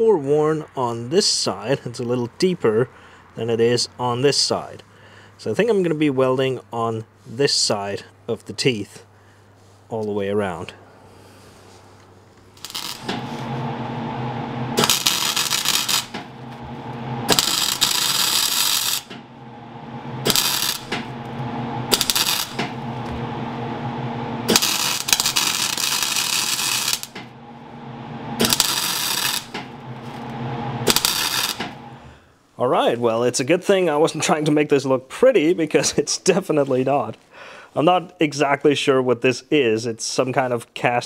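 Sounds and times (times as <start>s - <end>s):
welder humming: 12.3s - 32.2s
welding arc crackling: 12.4s - 27.4s, 28.2s - 32.1s.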